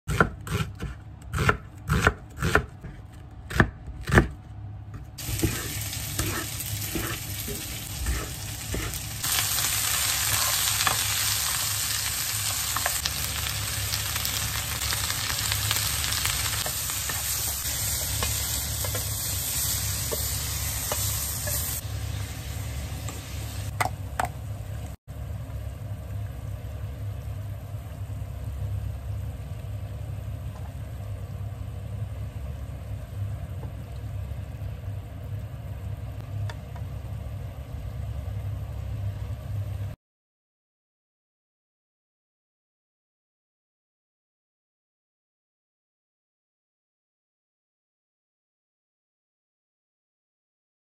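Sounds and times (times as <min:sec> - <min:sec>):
knife chopping on cutting board: 0:00.1 - 0:04.4
vegetables sizzling in frying pan: 0:05.2 - 0:23.7.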